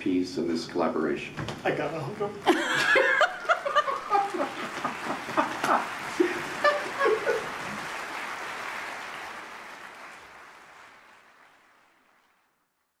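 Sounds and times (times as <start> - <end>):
audience applause: 2.5 - 12.8.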